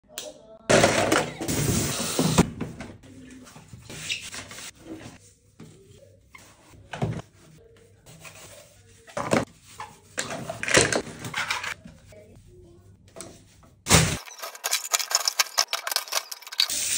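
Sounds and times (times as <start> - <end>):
rustling handling noise: 14.2 - 16.7
plastic toys clattering: 14.2 - 16.9.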